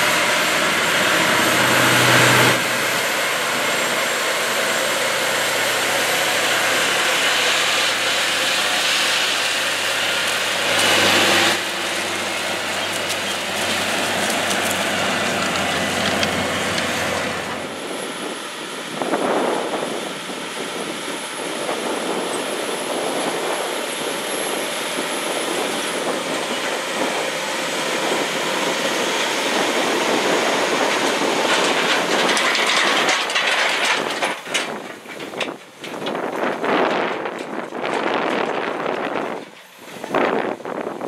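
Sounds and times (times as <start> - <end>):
tractor engine under load: 0.0 - 41.0
implement clattering and rattling: 0.3 - 17.7, 25.5 - 40.5.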